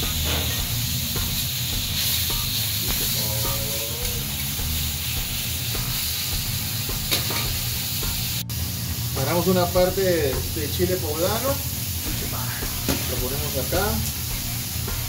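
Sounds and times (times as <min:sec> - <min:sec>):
meat sizzling on a griddle: 0:00.0 - 0:15.0.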